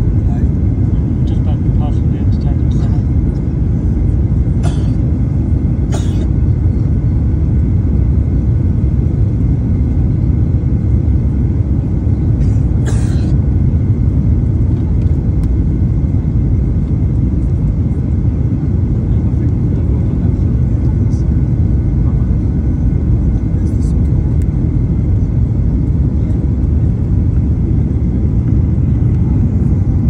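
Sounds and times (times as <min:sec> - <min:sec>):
airliner cabin engine rumble: 0:00.0 - 0:30.0.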